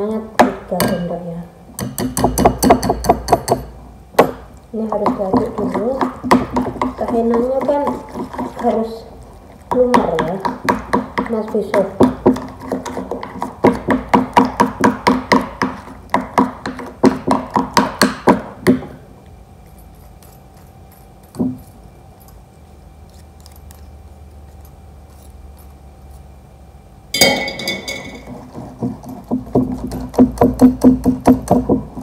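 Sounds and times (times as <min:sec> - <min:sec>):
fork stirring: 0:04.8 - 0:14.7, 0:19.6 - 0:26.4.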